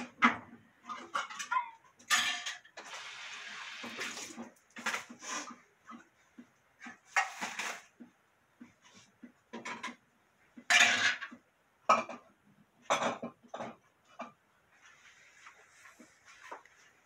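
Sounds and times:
dishes and utensils clattering: 0.0 - 3.0, 6.8 - 7.9, 9.5 - 10.0, 10.6 - 14.4.

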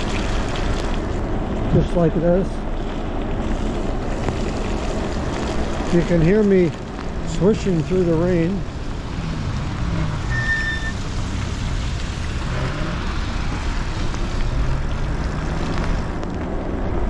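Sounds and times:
tyres swishing over wet pavement: 0.0 - 17.0
short high tone: 10.3 - 11.0.

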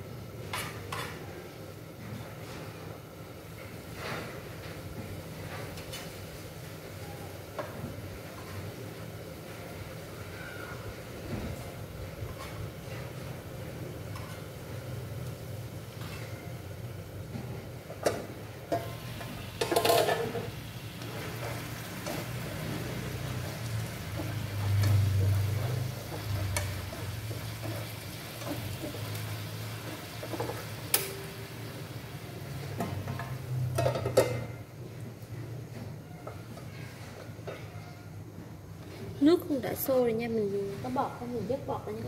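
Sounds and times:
food stirred in frying pan: 7.5 - 34.6
metal pan lid clinking: 19.6 - 20.4.

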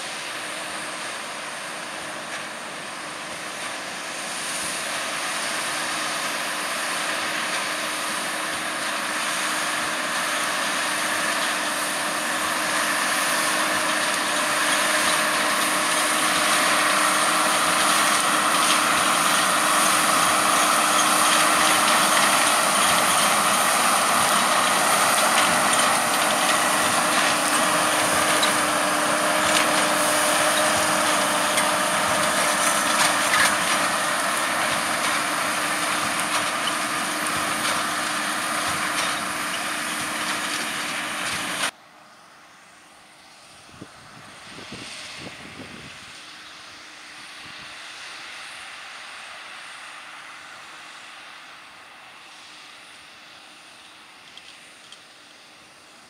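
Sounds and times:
tractor engine running under load: 0.0 - 56.0
baler drive working: 0.1 - 41.7.

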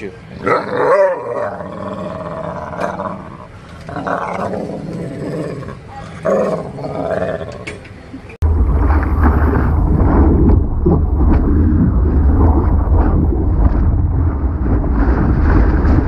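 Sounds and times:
rush of wind and water: 8.4 - 16.0.

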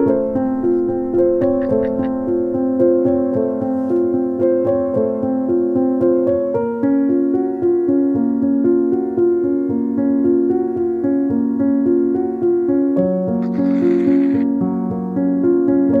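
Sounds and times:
background music melody: 0.0 - 16.0.

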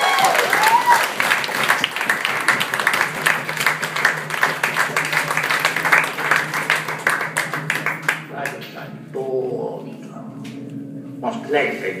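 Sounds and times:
audience applauding: 0.0 - 8.6
low hum: 0.0 - 12.0.

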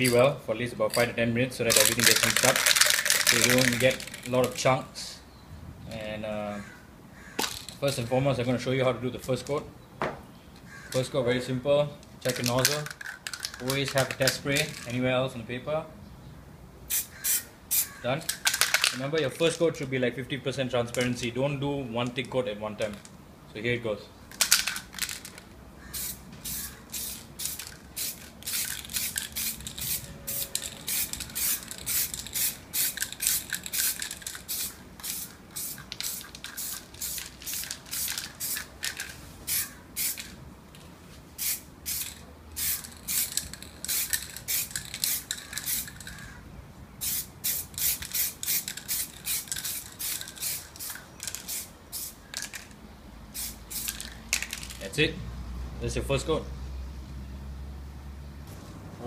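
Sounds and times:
aerosol spray paint hissing: 16.9 - 17.9, 25.9 - 38.7, 39.4 - 40.3, 41.4 - 46.1, 47.0 - 52.3, 53.4 - 54.1.

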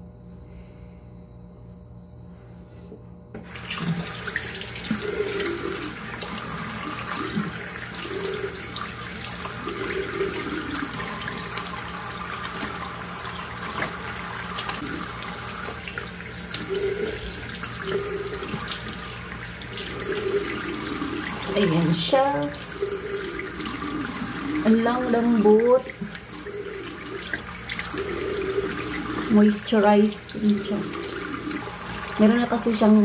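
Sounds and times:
tap water running: 3.4 - 33.0.

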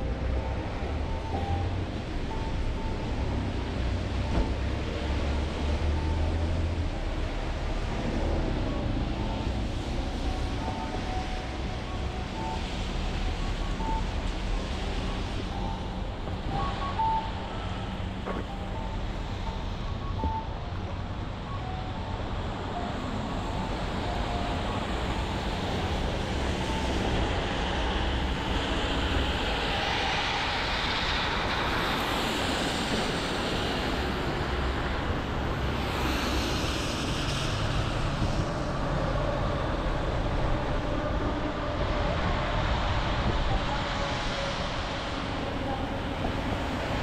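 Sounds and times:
traffic rumble: 0.0 - 47.0
passing vehicle hiss: 22.3 - 47.0.

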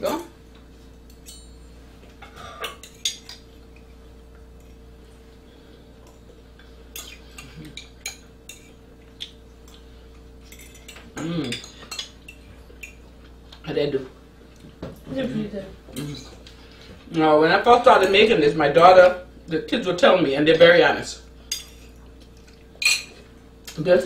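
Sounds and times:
steady low hum: 0.0 - 24.0
forks clinking on plates: 1.1 - 3.9, 10.4 - 13.0, 22.8 - 23.2.

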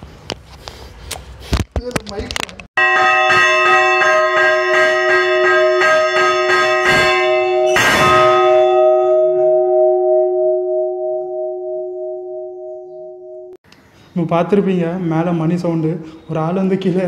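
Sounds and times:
church bell ringing: 2.8 - 13.6.

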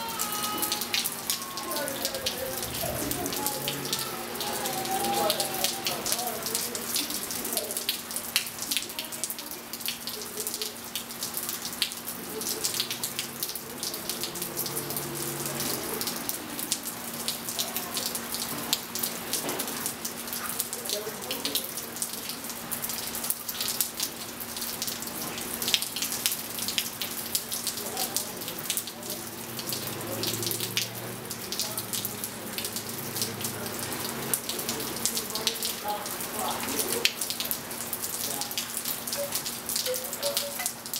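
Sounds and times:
drips splashing: 0.0 - 40.9
rain falling on pool: 0.0 - 40.9.

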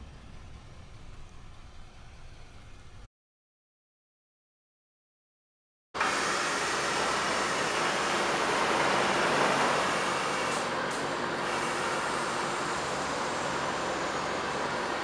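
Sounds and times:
air hissing into suspension: 9.5 - 14.1.

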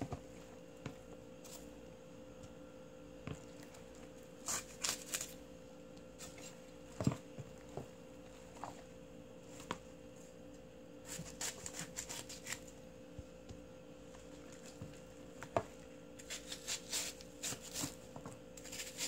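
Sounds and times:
faint steady hum: 0.0 - 19.0
knife cutting cabbage: 4.4 - 5.4, 11.0 - 12.7, 16.2 - 19.0.

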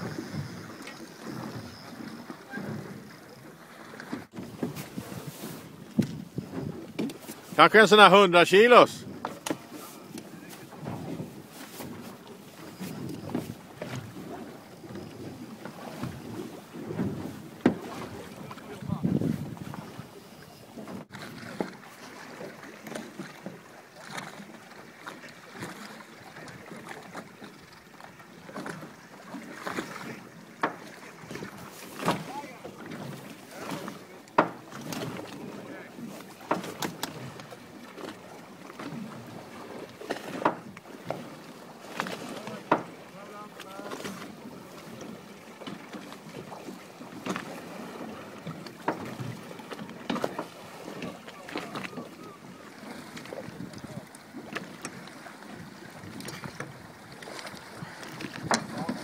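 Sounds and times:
water slapping boat hull: 0.0 - 59.0
wind buffeting microphone: 10.2 - 20.2.

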